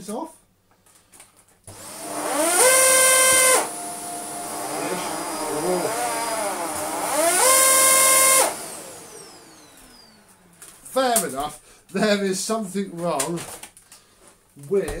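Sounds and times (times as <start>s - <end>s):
vacuum cleaner motor: 1.7s - 11.3s.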